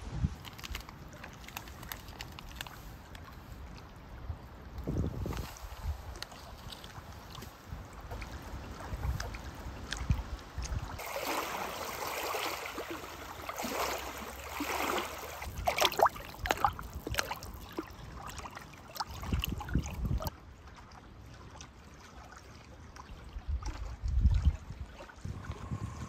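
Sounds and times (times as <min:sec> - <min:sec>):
wind rumbling on microphone: 0:00.0 - 0:11.0, 0:19.0 - 0:20.4, 0:23.1 - 0:26.0
small waves lapping on shore: 0:00.4 - 0:26.0.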